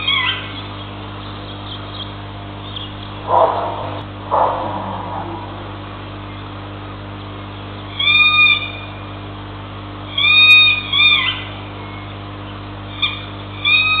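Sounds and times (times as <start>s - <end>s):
steady low hum: 0.0s - 14.0s
animal high-pitched cries: 10.1s - 11.6s, 12.9s - 14.0s.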